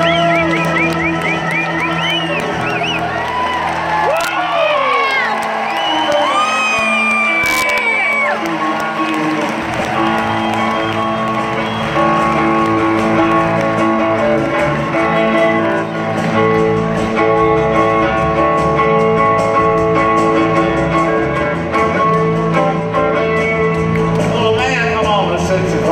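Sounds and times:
crowd whooping: 0.0s - 16.2s
live country band playing: 0.0s - 25.9s
electric bass: 6.3s - 25.9s.

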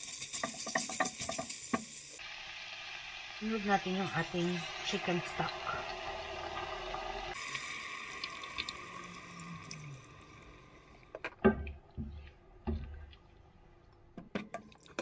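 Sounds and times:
stock pouring into a pot: 4.5s - 10.9s.

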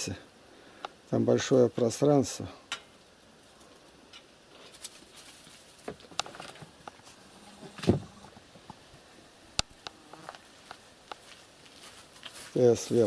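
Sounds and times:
loud thump: 7.7s - 8.2s
knocks and rustles on wooden boards: 7.7s - 8.8s.

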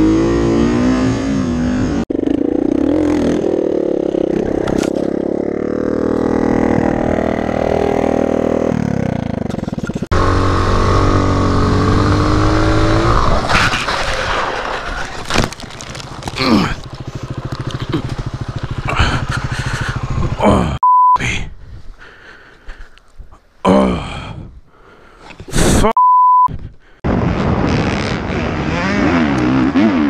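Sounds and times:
dirt bike engines revving: 0.0s - 20.8s, 28.1s - 30.0s
motorcycle crash knocks and scrapes: 4.3s - 5.2s, 13.1s - 18.7s.

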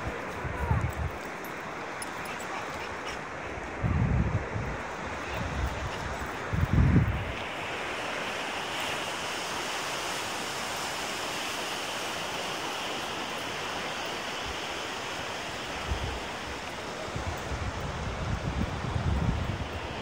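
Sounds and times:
ocean surf breaking: 6.4s - 18.8s.

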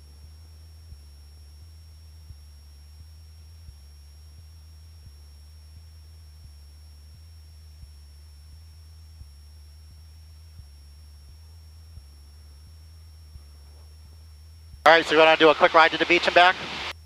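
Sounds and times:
propeller plane engine drone: 0.0s - 17.0s
thin high whine: 12.0s - 17.0s.

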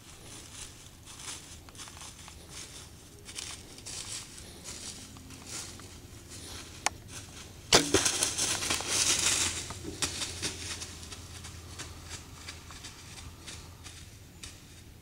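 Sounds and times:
deer running through dry leaves: 0.0s - 15.0s
bowstring twang: 7.7s - 8.4s
bow shot crack: 7.7s - 8.5s.

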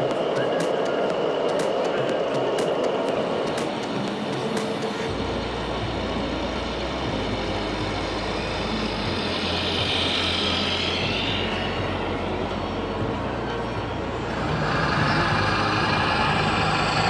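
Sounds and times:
hiss: 0.0s - 12.4s
diesel truck engine sound: 0.0s - 17.0s.

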